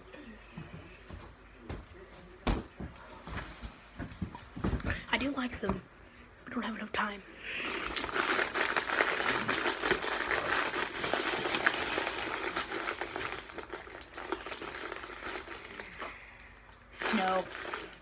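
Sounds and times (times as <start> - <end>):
wrapped candies crinkling: 7.4 - 18.0.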